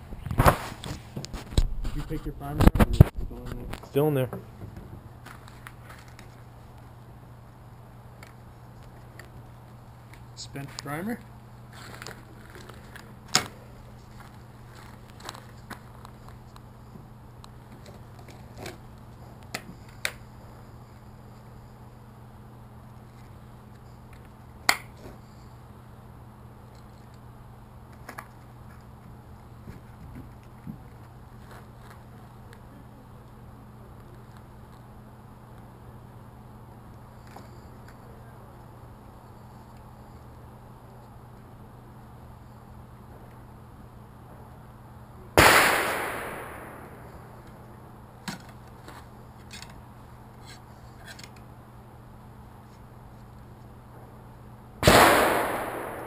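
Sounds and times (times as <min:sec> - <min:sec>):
gunshot: 0:45.4 - 0:47.2, 0:54.8 - 0:56.0.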